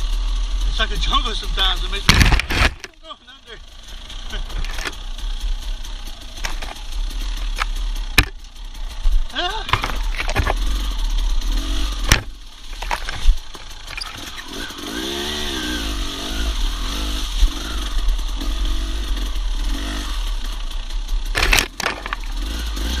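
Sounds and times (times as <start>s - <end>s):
dirt bike engine revving: 0.0s - 23.0s
brush striking bike: 0.9s - 15.6s, 19.6s - 23.0s.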